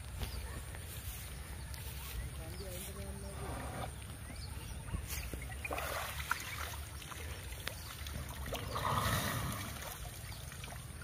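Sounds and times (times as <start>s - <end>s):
elephant splashing water: 5.4s - 11.0s.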